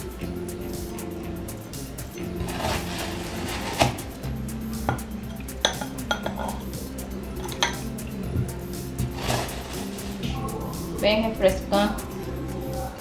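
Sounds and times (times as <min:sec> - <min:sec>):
scoop scraping ice cream: 0:02.4 - 0:04.1.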